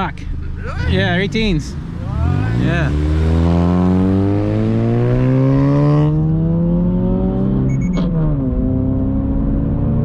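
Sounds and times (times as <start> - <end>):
car engine accelerating: 0.0 - 10.0
short beeping: 7.7 - 8.1.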